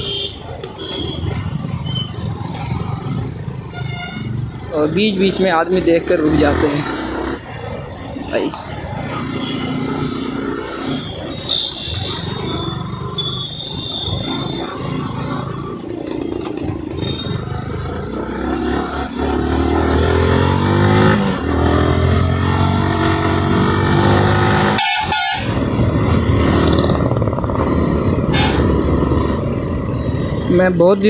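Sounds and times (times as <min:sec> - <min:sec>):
wind and road noise: 0:00.0 - 0:31.0
motorcycle engine accelerating: 0:05.7 - 0:24.8, 0:25.4 - 0:30.5
horn beeps: 0:10.7 - 0:15.0, 0:16.9 - 0:17.5, 0:24.6 - 0:25.5.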